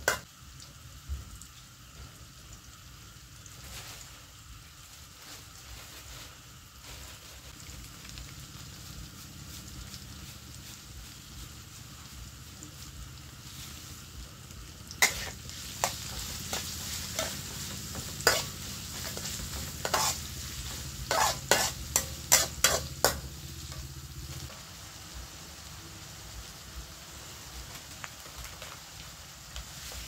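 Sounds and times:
vegetables sizzling in oil: 0:00.0 - 0:30.0
metal spatula clanking on wok: 0:15.0 - 0:20.2, 0:21.1 - 0:23.8.

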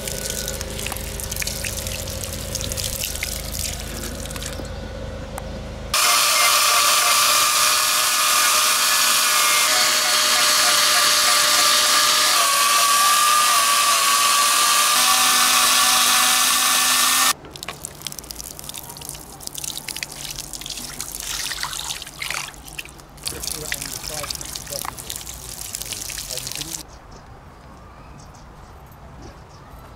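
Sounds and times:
water splashing and trickling: 0:00.0 - 0:04.7, 0:17.4 - 0:26.8
power carving tool grinding wood: 0:06.0 - 0:17.4.

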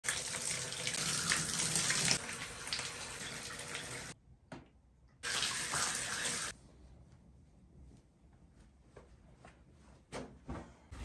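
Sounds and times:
shower water running into bathtub: 0:00.0 - 0:04.2, 0:05.2 - 0:06.6.

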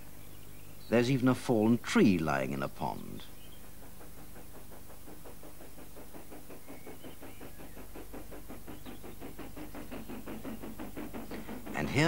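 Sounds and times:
train chuffing: 0:00.0 - 0:12.0.

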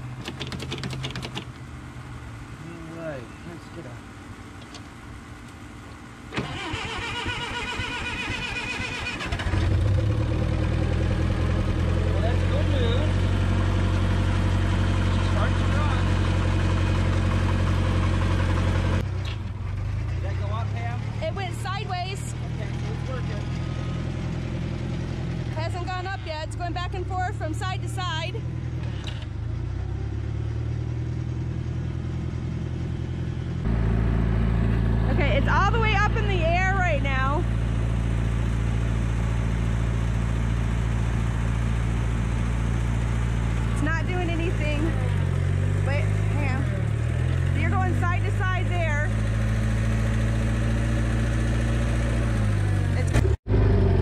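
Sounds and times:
forklift engine running: 0:00.0 - 0:54.0
engine starter cranking: 0:06.3 - 0:10.1.

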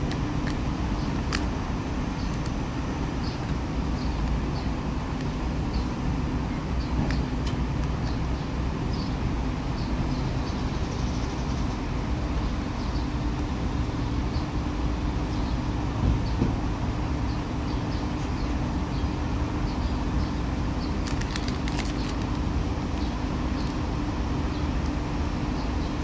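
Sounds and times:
highway traffic roar: 0:00.0 - 0:26.0
short crackles: 0:21.0 - 0:23.0.

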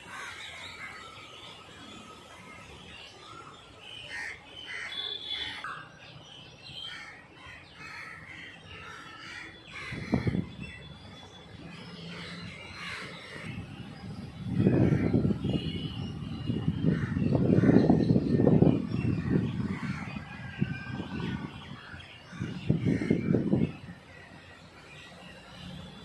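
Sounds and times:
birds calling: 0:00.0 - 0:26.0
crows cawing: 0:06.8 - 0:10.5, 0:12.1 - 0:13.5.

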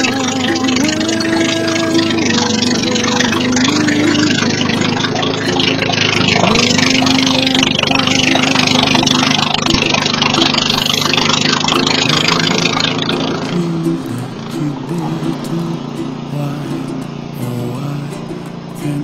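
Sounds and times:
slow song playing: 0:00.0 - 0:19.0
snowblower engine running: 0:00.0 - 0:19.0.

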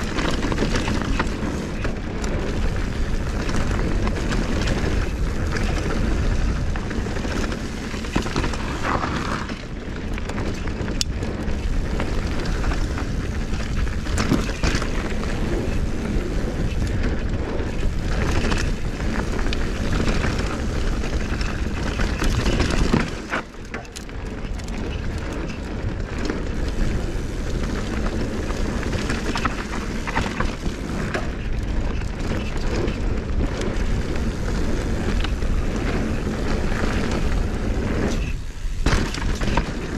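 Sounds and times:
bike knocks and rattles: 0:00.0 - 0:39.9
bike tyres crunching over gravel: 0:00.0 - 0:39.9
wind rumble on microphone: 0:00.0 - 0:39.9.

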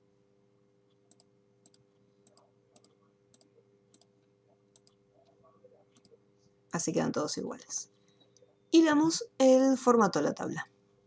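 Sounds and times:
faint steady hum: 0:00.0 - 0:11.0
faint mouse clicks: 0:00.9 - 0:06.2.

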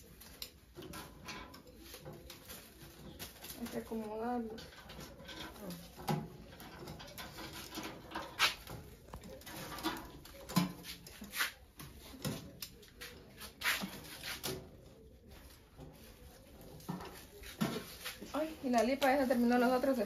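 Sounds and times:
kitchen clicks and knocks: 0:00.1 - 0:14.9.

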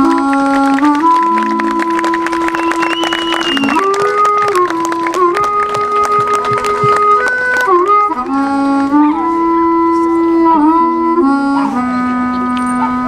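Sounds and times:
handclaps: 0:00.0 - 0:08.4
wind instrument slow melody: 0:00.0 - 0:13.0.

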